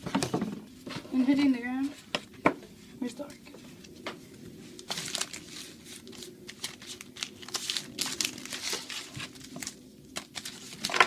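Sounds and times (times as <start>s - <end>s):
card packaging crinkling: 4.7s - 11.0s.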